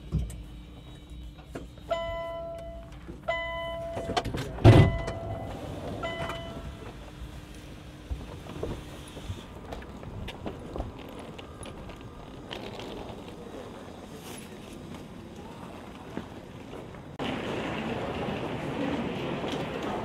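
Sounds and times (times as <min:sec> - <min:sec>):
electronic warning beeps: 0:00.3 - 0:06.8
train door rushing open: 0:03.3 - 0:07.1.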